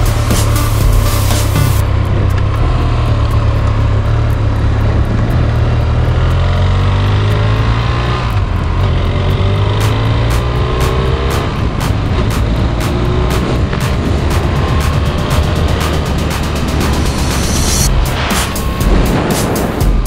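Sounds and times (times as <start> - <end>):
motorcycle engine accelerating: 0.0 - 20.0
wind rushing over microphone: 11.4 - 20.0.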